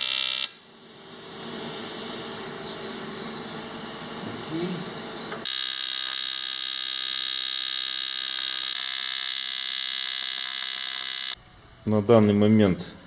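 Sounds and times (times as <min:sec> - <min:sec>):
welding arc buzzing: 0:00.0 - 0:13.0.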